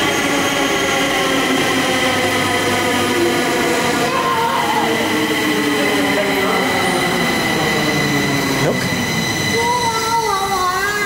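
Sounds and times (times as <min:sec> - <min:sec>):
electric train motor whine: 0:00.0 - 0:11.0
rising squeal: 0:00.0 - 0:11.0
train running on rails: 0:00.0 - 0:11.0
steady high tones: 0:03.6 - 0:11.0.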